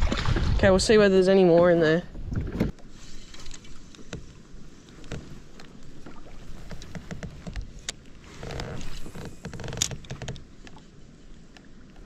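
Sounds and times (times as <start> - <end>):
fishing gear clicks and knocks: 2.5 - 10.8.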